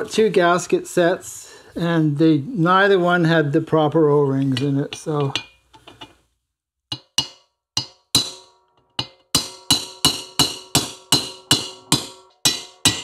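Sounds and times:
metal rod striking metal: 6.9s - 13.0s.

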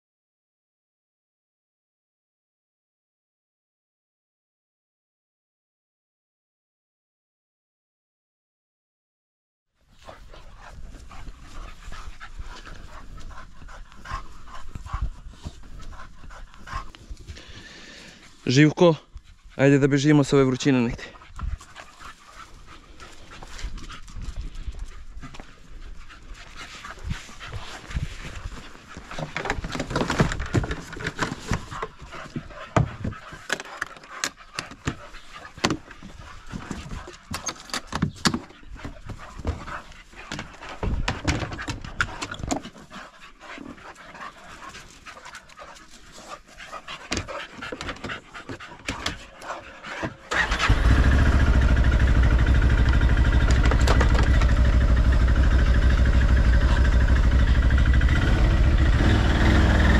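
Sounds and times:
dog panting: 9.9s - 59.9s
clicks and rustles: 21.4s - 43.0s, 52.8s - 54.8s.

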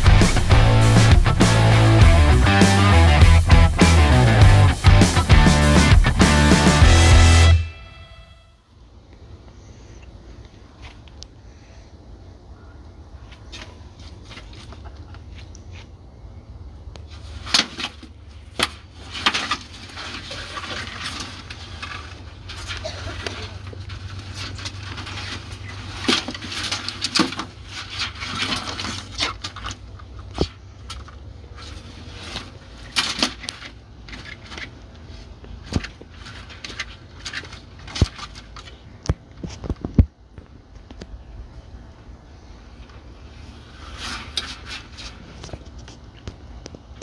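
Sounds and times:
rustling scrape: 17.1s - 30.7s, 31.4s - 39.8s, 42.4s - 46.2s.

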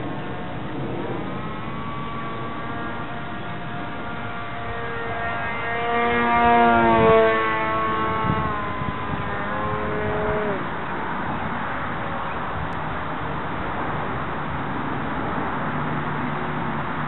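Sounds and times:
model plane motor whining: 0.0s - 12.8s.

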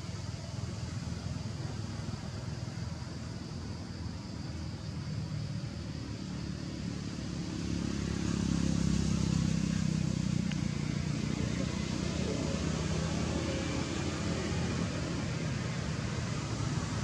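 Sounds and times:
vehicle engine running: 6.0s - 17.0s.

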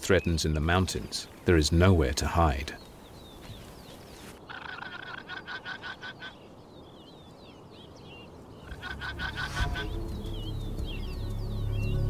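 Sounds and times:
small birds chirping: 0.0s - 12.0s
shrill pulsed animal alarm call: 8.6s - 11.0s.

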